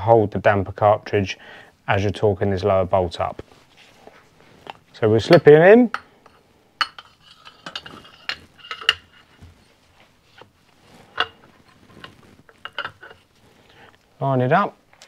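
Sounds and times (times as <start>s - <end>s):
metal rod clinking inside fork leg: 6.8s - 9.4s, 11.1s - 13.2s.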